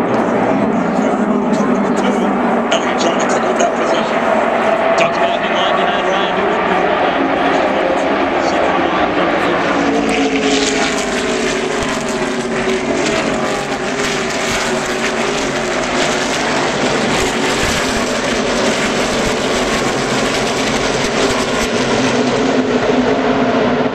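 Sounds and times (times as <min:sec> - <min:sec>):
race cars passing: 0:00.0 - 0:23.9.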